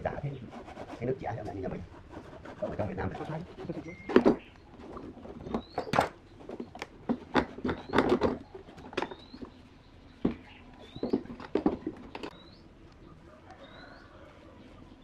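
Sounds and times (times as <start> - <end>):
bird chirping: 3.0 - 15.0
wooden pieces knocking: 3.8 - 9.5, 10.2 - 12.4.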